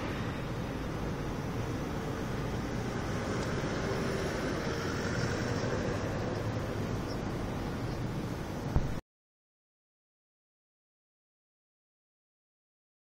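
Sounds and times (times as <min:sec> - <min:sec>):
road traffic rumble: 0:00.0 - 0:09.0.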